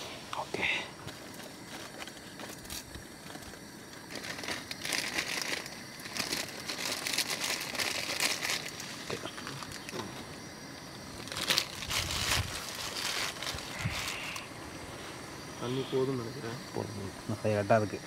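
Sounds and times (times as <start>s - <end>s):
plastic packaging crinkling: 1.2s - 10.0s, 11.2s - 14.4s.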